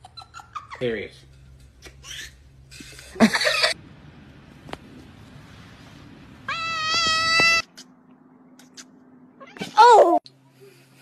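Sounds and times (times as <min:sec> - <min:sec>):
cat meowing: 0:06.5 - 0:07.6.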